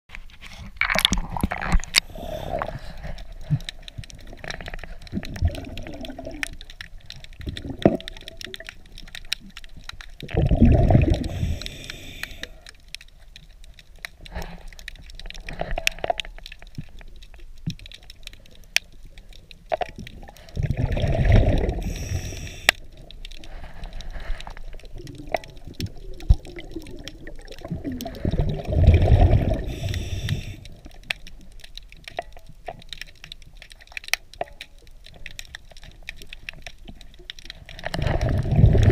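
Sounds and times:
underwater bubble bursts: 0:00.8 - 0:12.7, 0:19.8 - 0:23.8, 0:24.8 - 0:32.3, 0:37.0 - 0:38.9.

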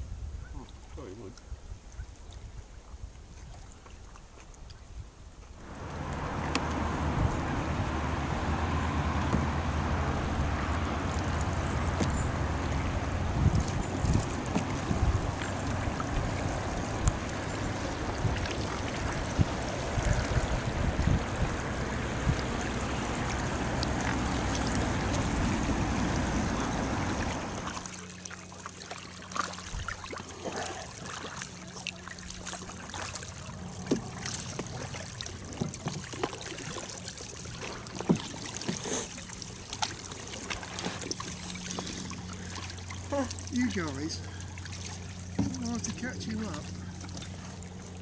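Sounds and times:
wind noise on microphone: 0:00.0 - 0:03.7, 0:04.7 - 0:27.7
paddle splashes and drips: 0:00.6 - 0:48.0
water rushing: 0:05.6 - 0:48.0.

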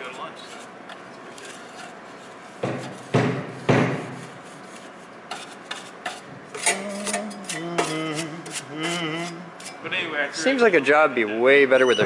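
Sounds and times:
brush scraping metal: 0:00.0 - 0:03.2, 0:04.0 - 0:09.9.

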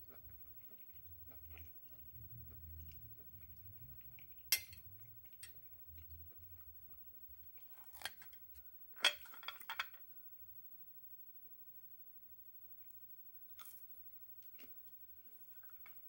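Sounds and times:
chewing food: 0:00.0 - 0:09.4, 0:12.8 - 0:16.0.

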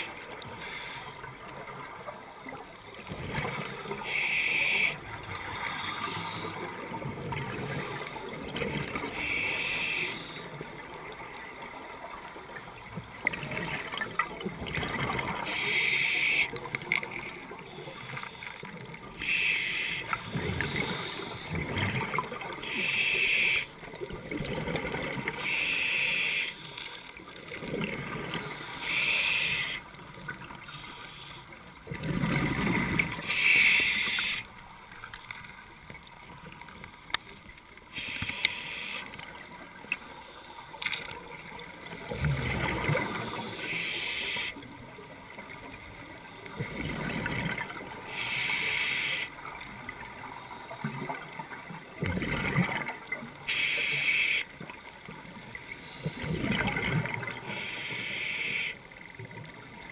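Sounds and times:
regulator inhale hiss: 0:00.4 - 0:01.3, 0:04.0 - 0:06.6, 0:09.2 - 0:10.6, 0:15.4 - 0:16.5, 0:17.7 - 0:21.6, 0:22.6 - 0:23.7, 0:25.4 - 0:27.1, 0:28.5 - 0:29.9, 0:30.6 - 0:31.6, 0:33.2 - 0:34.5, 0:36.8 - 0:39.2, 0:43.1 - 0:44.6, 0:48.1 - 0:49.3, 0:53.5 - 0:54.5, 0:57.4 - 0:58.8
exhaled bubbles gurgling: 0:13.2 - 0:18.1, 0:18.7 - 0:25.6, 0:31.8 - 0:34.3, 0:41.4 - 0:43.6, 0:44.2 - 0:48.3, 0:50.8 - 0:53.4, 0:55.3 - 0:57.6.

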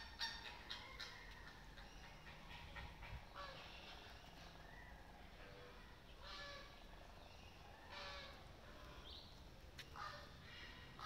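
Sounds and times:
flamingos honking: 0:06.2 - 0:06.9, 0:07.8 - 0:09.1.

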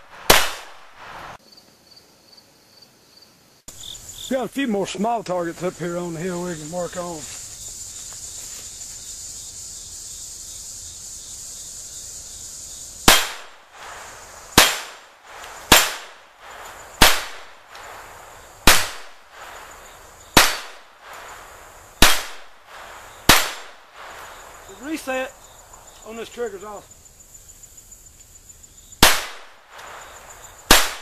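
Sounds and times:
pistol shots: 0:00.1 - 0:00.9, 0:13.0 - 0:13.9, 0:14.6 - 0:16.2, 0:17.0 - 0:17.9, 0:18.6 - 0:19.7, 0:20.4 - 0:21.1, 0:22.0 - 0:24.2, 0:29.0 - 0:30.0, 0:30.7 - 0:31.0.

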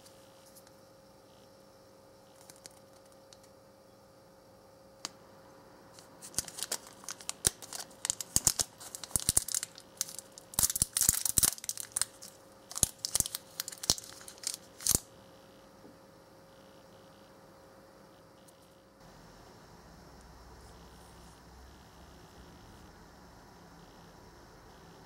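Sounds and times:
plastic wrapper crinkling and tearing: 0:02.4 - 0:03.5, 0:06.0 - 0:15.1.

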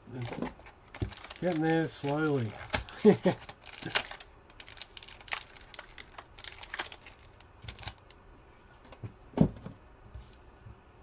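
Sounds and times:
cards clicking and rustling: 0:00.1 - 0:08.2.

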